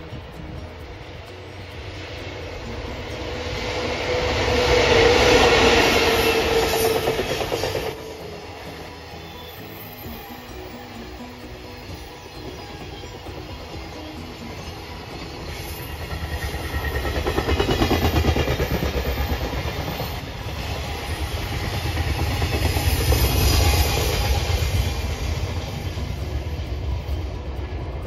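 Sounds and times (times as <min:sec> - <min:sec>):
train wheels clattering: 0:12.7 - 0:28.0.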